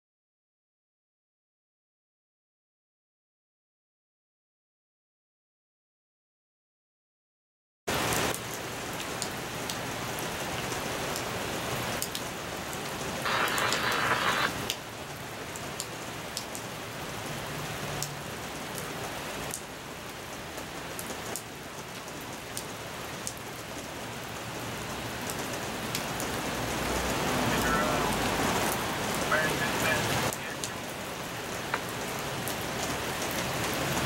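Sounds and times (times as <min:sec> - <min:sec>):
rain falling: 0:07.9 - 0:34.0
loud hiss: 0:13.2 - 0:14.7.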